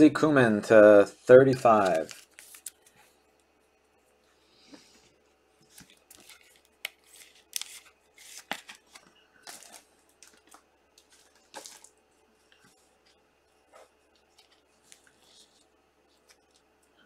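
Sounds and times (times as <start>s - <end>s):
plastic sleeves crinkling: 1.6s - 3.2s, 5.6s - 13.2s.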